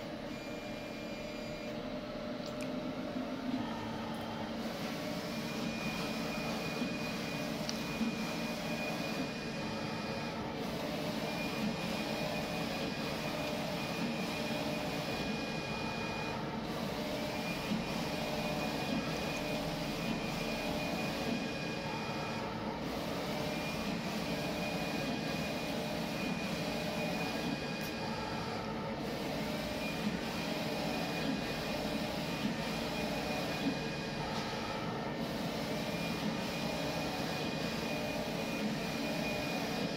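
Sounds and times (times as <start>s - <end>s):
printer machine running: 0.0s - 39.9s.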